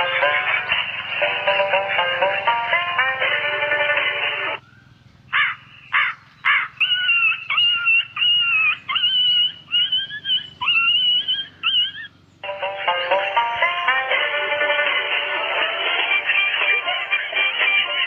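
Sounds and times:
background music: 0:00.0 - 0:04.6, 0:12.4 - 0:18.0
high whining animal calls: 0:05.4 - 0:12.2.

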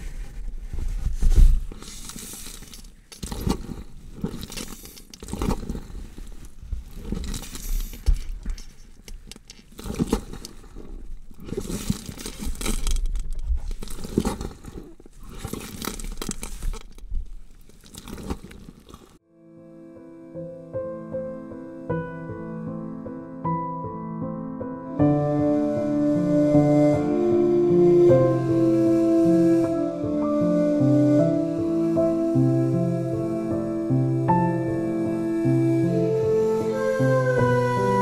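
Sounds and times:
rustling and scraping: 0:00.0 - 0:19.2.

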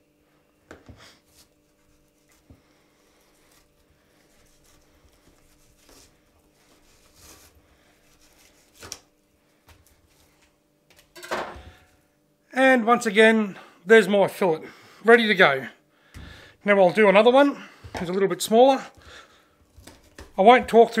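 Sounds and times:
knife scraping fish skin: 0:01.3 - 0:02.5, 0:03.2 - 0:09.0.

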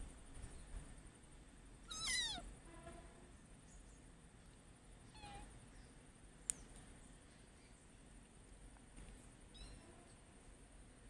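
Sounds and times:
cat meowing: 0:01.9 - 0:02.5, 0:05.1 - 0:05.5.

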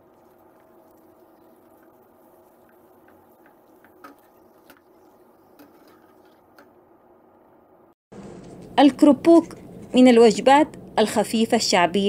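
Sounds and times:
crackers sizzling in hot oil: 0:00.0 - 0:06.4.

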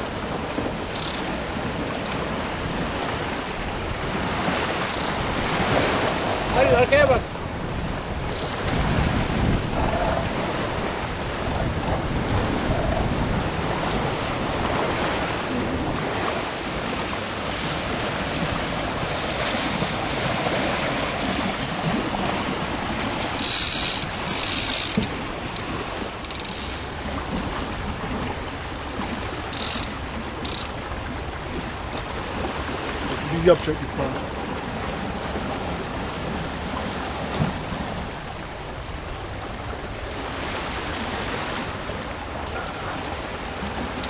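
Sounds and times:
wind and water rushing: 0:00.0 - 0:44.0
winch ratchets clicking: 0:00.9 - 0:01.3, 0:04.8 - 0:05.3, 0:08.3 - 0:08.7, 0:23.4 - 0:27.0, 0:29.5 - 0:30.8.

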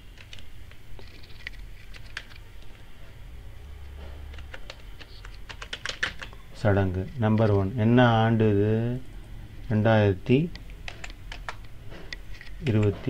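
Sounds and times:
faint low hum: 0:00.0 - 0:13.0
keyboard keys clicking: 0:04.2 - 0:06.4, 0:10.5 - 0:11.8.

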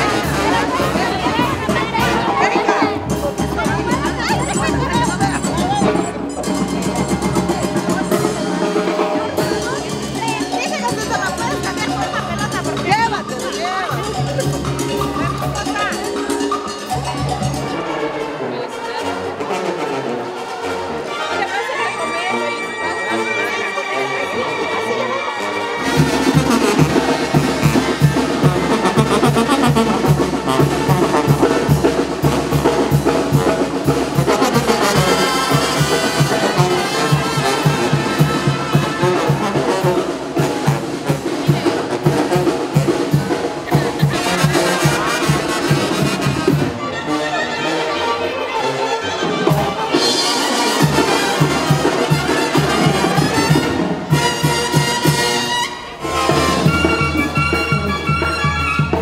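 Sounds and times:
brass band music: 0:00.0 - 0:59.0.

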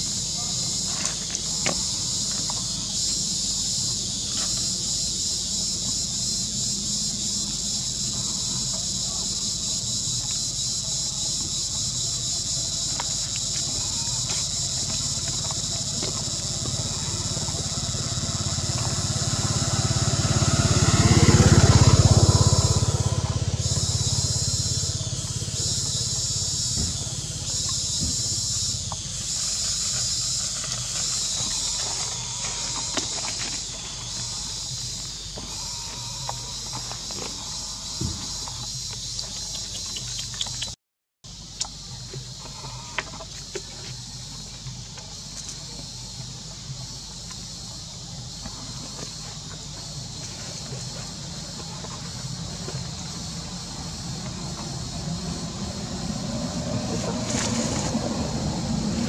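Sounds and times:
insects buzzing: 0:00.0 - 0:59.0
vehicle passing: 0:16.6 - 0:26.5, 0:51.5 - 0:59.0.

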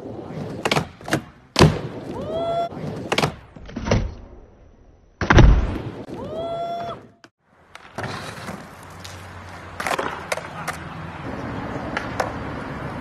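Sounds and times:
skateboard thudding on wooden ramp: 0:00.4 - 0:02.1.

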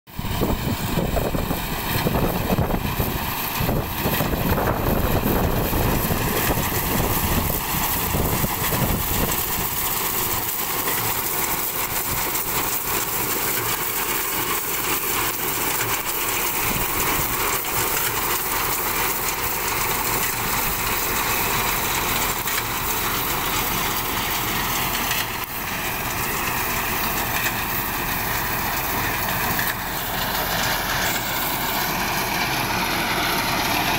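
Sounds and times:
tractor engine running: 0:00.1 - 0:33.9.

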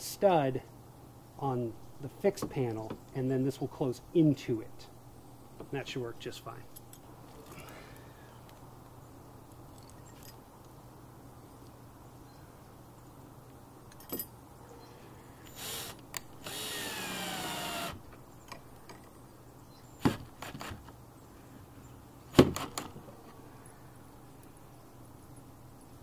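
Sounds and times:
cordless drill driving screws: 0:15.6 - 0:18.0.

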